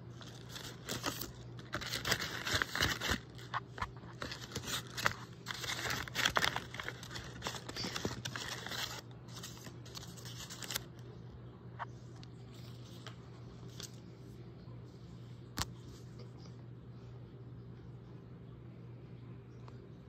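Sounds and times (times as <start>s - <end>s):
paper rustling and crinkling: 0.0s - 11.0s, 12.2s - 14.0s.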